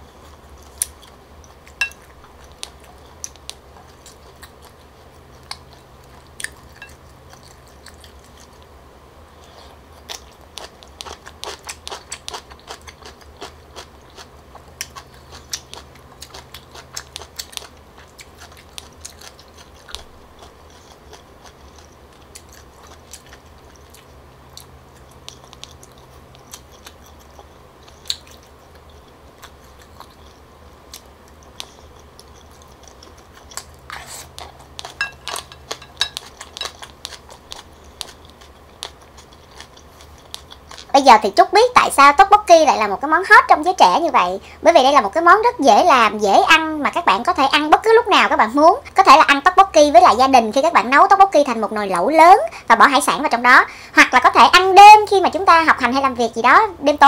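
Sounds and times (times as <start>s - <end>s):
person chewing food: 0.0s - 40.9s.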